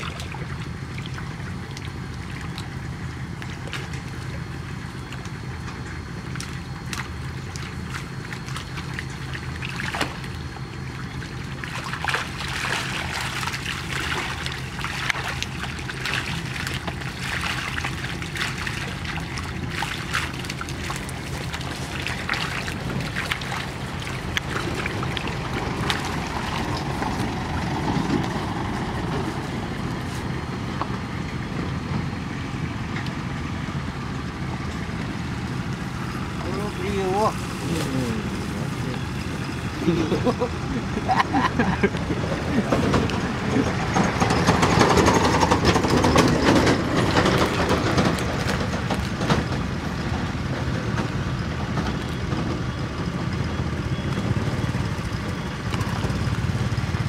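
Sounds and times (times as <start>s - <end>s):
fish thrashing and splashing: 0.0s - 28.4s
steady low hum: 0.0s - 57.0s
water pouring through mesh: 11.6s - 27.2s.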